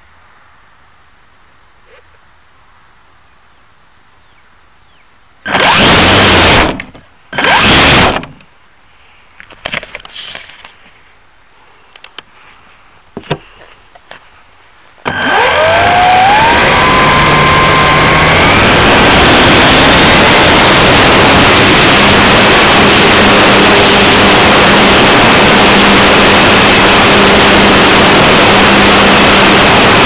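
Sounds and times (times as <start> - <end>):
loud bursts of noise: 5.4 - 8.4, 15.0 - 30.0
propeller motor whine: 5.5 - 8.3, 15.0 - 30.0.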